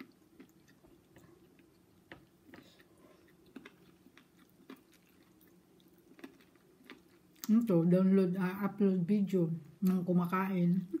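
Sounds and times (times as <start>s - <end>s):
people chewing: 0.0s - 7.6s
low steady hum: 0.0s - 11.0s.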